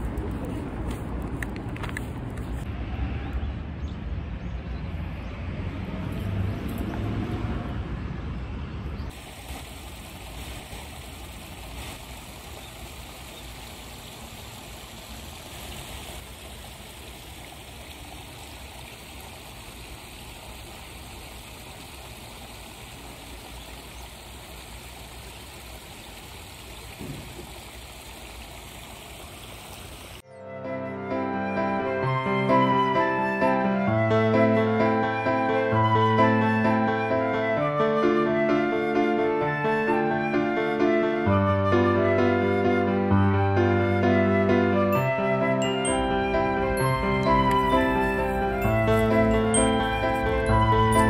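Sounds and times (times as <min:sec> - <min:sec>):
running water trickling: 0:09.1 - 0:30.2.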